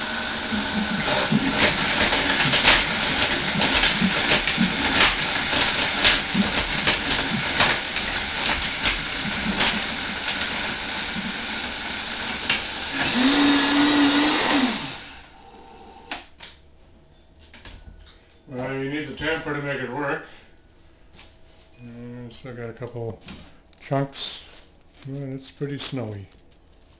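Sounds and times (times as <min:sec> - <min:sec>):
blender crushing ice: 0:00.0 - 0:16.2.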